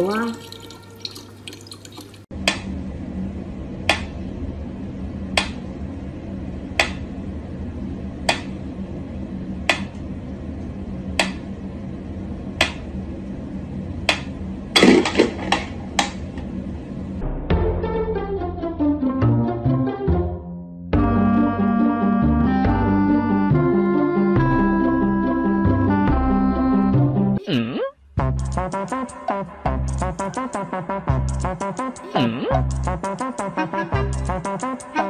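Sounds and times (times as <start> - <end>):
steady low hum: 2.3 - 17.5, 28.0 - 35.0.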